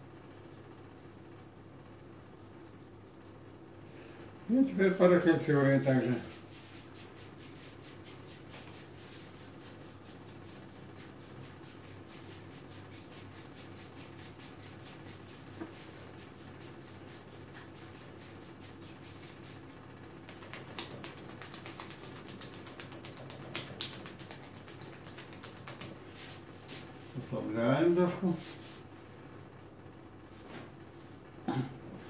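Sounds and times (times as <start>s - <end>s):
palms rubbing on skin: 0.5s - 3.6s, 5.2s - 27.4s, 28.1s - 30.4s
hands patting skin: 5.9s - 27.2s.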